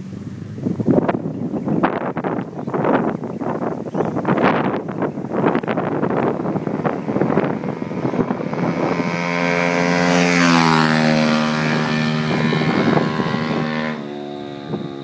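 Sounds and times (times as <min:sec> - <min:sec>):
wind on microphone: 0:00.0 - 0:15.0
motorbike passing by: 0:04.5 - 0:15.0.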